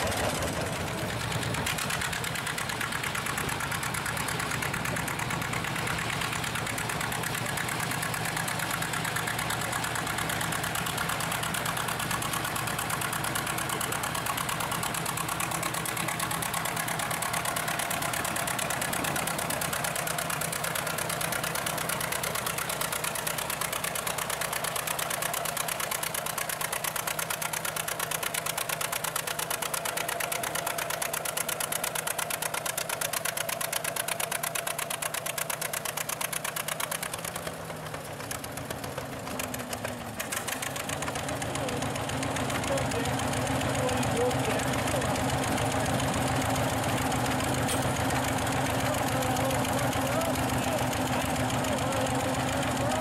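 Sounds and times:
tractor engine under load: 0:00.0 - 0:53.0.

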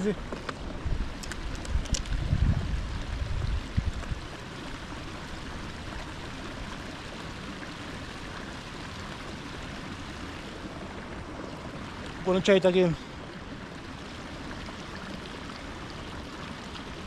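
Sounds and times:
flowing water rushing: 0:00.0 - 0:17.0.

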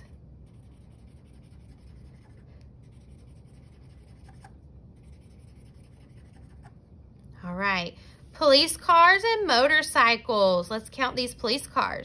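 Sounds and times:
marker scribbling on paper: 0:00.0 - 0:06.8.

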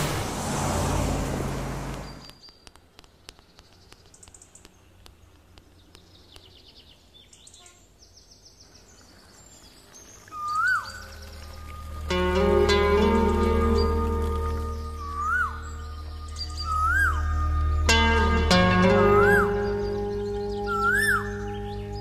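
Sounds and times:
birds chirping and trilling: 0:00.6 - 0:22.0
light ticks: 0:01.9 - 0:06.6
rising and swooping whistle: 0:15.0 - 0:18.0.

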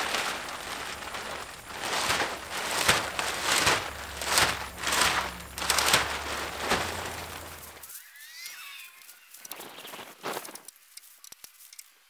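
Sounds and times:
plastic wrap snapping: 0:00.0 - 0:07.8
plastic wrap rustling and crackling: 0:00.0 - 0:07.9.

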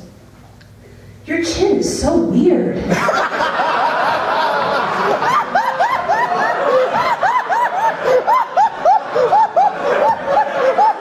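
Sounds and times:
loud high laugh: 0:02.9 - 0:11.0
people laughing: 0:02.9 - 0:11.0.

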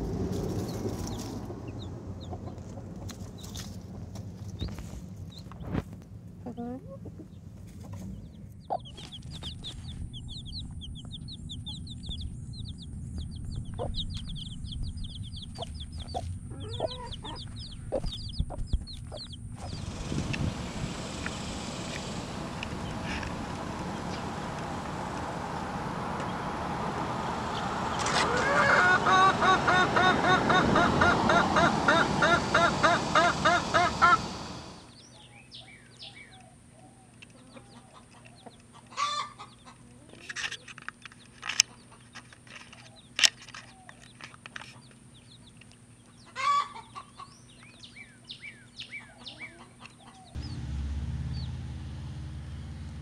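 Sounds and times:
baby chicks peeping: 0:00.0 - 0:26.6, 0:27.2 - 0:50.6, 0:51.3 - 0:51.6
hen clucking: 0:01.0 - 0:03.7, 0:06.4 - 0:20.1, 0:27.5 - 0:34.8, 0:37.3 - 0:40.3, 0:44.8 - 0:47.7, 0:48.9 - 0:50.4.

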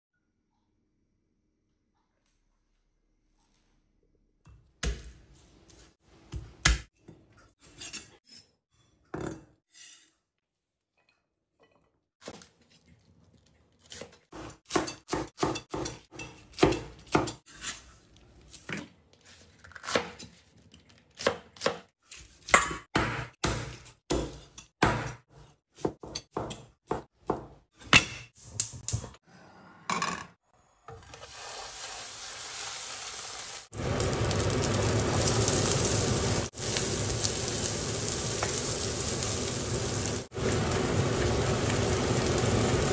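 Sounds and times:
chicken sizzling in a frying pan: 0:31.3 - 0:42.9.

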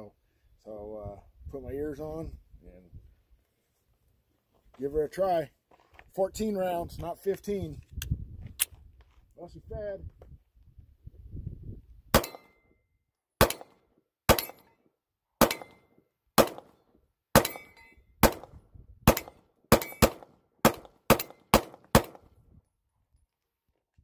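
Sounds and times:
pistol shots: 0:12.2 - 0:12.6, 0:13.4 - 0:14.6, 0:15.4 - 0:15.8, 0:16.4 - 0:16.8, 0:17.4 - 0:18.5, 0:19.1 - 0:22.3.

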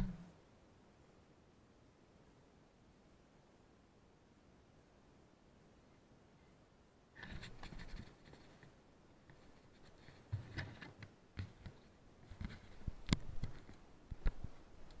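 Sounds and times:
scraping and rustling: 0:07.2 - 0:14.5.

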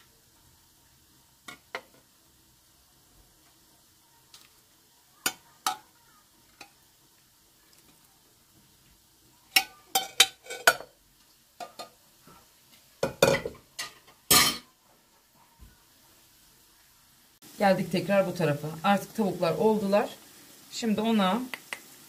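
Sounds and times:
utensils and dishes clinking: 0:09.5 - 0:11.0, 0:13.0 - 0:14.7.

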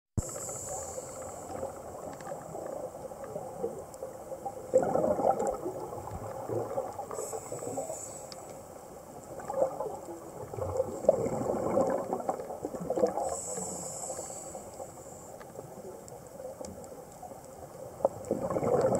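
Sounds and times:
regulator inhale hiss: 0:00.2 - 0:02.2, 0:07.1 - 0:08.9, 0:13.1 - 0:15.6
exhaled bubbles gurgling: 0:00.2 - 0:08.3, 0:09.1 - 0:14.9, 0:15.5 - 0:18.9.

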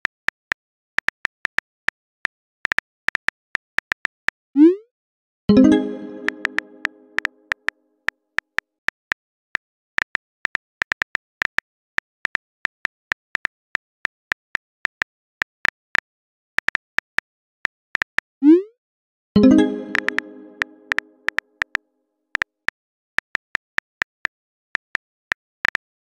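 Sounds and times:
phone keyboard typing taps: 0:05.8 - 0:07.3, 0:19.4 - 0:21.4.

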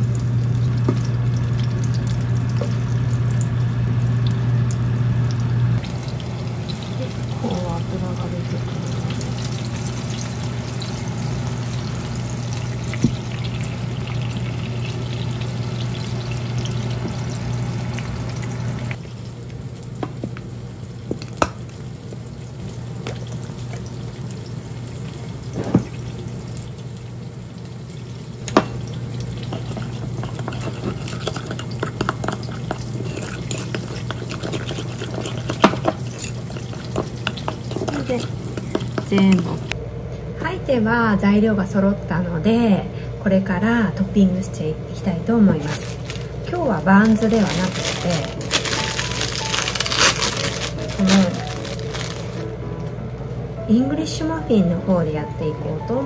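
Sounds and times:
patties sizzling in a frying pan: 0:00.0 - 0:30.5
spoon stirring mayonnaise: 0:29.5 - 0:39.6
utensils knocking on ceramic bowl: 0:29.5 - 0:39.6.

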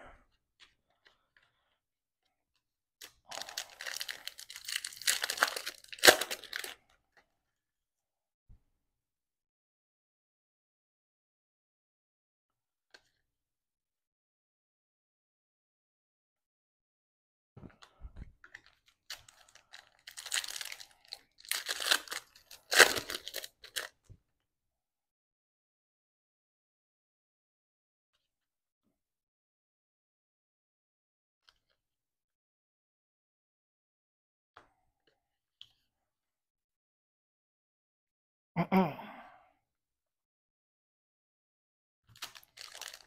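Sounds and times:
foil wrapper tearing and crinkling: 0:03.3 - 0:06.8, 0:18.6 - 0:23.9, 0:42.1 - 0:43.0.

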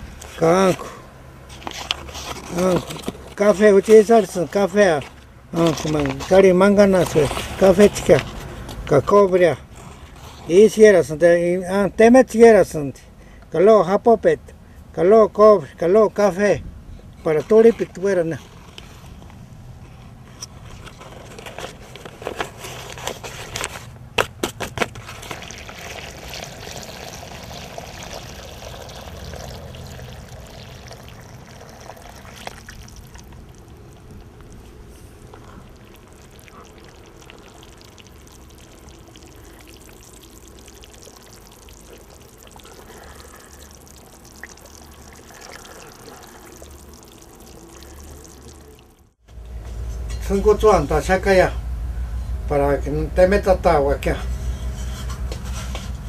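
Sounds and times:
wet mix stirred by hand: 0:01.4 - 0:08.9, 0:24.7 - 0:49.1
water pouring: 0:01.5 - 0:06.4, 0:25.0 - 0:49.2
powder pouring: 0:01.5 - 0:08.6, 0:24.8 - 0:49.1.

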